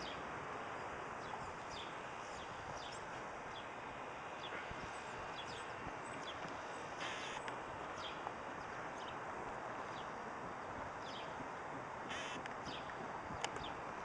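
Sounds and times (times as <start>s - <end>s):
small birds chirping: 0.0s - 14.0s
brief hiss: 7.0s - 7.5s.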